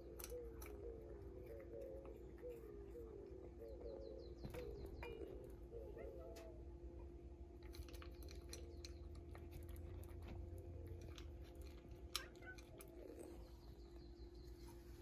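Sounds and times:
steady low hum: 0.0s - 15.0s
cat chewing dry kibble: 7.4s - 14.2s.

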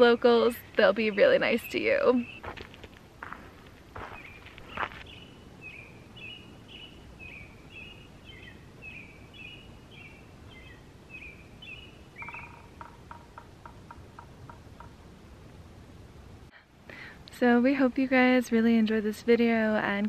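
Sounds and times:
bird chirping: 0.0s - 2.5s, 4.0s - 15.0s
outdoor background noise: 0.0s - 20.0s.

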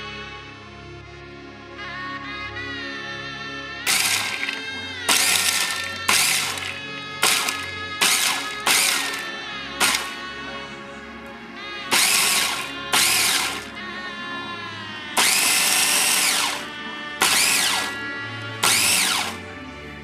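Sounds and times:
background music: 0.0s - 20.0s
electric food chopper motor whining: 3.9s - 10.2s, 11.9s - 13.7s, 15.2s - 19.5s.

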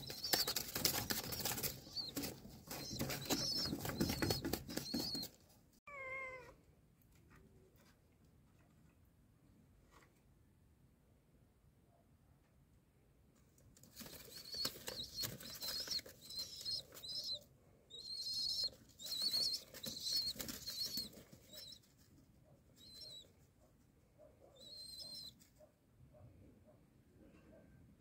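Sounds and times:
pigeon wings beating: 0.0s - 5.4s, 13.9s - 17.4s, 18.3s - 21.7s.

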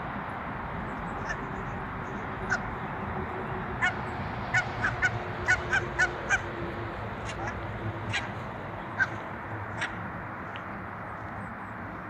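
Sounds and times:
geese honking: 1.2s - 2.7s, 3.7s - 6.5s, 7.2s - 10.0s.

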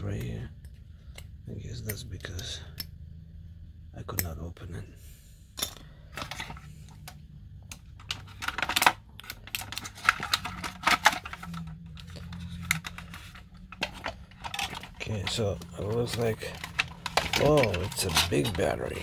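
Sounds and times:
plastic toy clicking and rattling: 8.0s - 19.0s.

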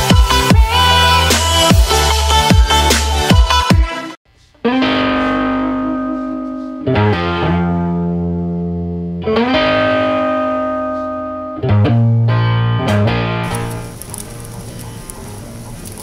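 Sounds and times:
distorted electric guitar chords: 4.6s - 15.6s.

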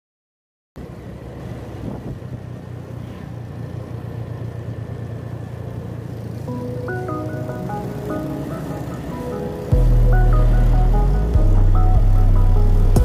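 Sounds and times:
motorcycle engine running: 0.8s - 13.0s
wind and road noise: 0.8s - 13.0s
music with plucked notes: 6.5s - 13.0s.

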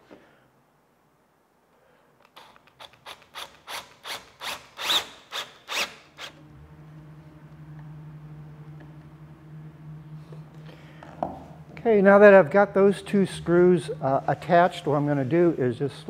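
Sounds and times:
drill driving screw into wood: 2.4s - 6.4s
steady low hum: 6.1s - 16.0s.

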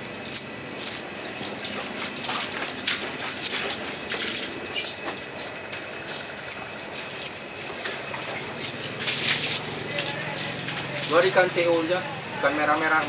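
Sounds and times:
knife scraping fish scales: 0.1s - 9.8s.

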